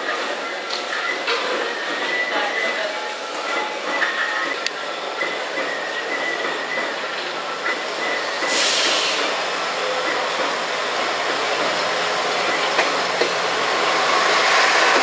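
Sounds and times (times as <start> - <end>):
diesel railcar engine running: 0.0 - 15.0
hissing air burst: 8.4 - 9.4.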